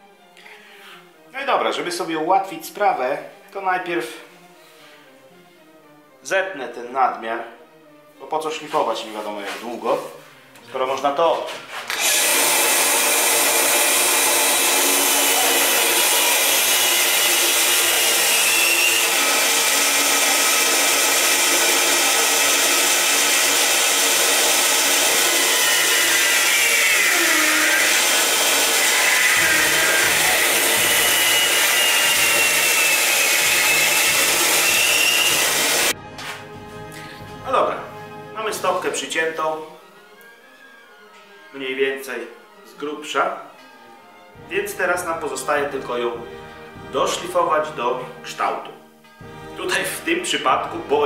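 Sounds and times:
band saw cutting rubber: 11.9 - 35.9.

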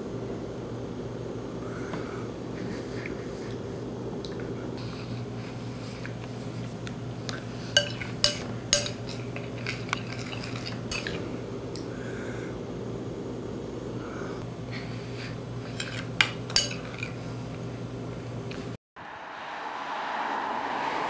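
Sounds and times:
low room hum: 0.0 - 21.0
spoon clinking against bowl: 7.7 - 11.2, 15.8 - 17.2.

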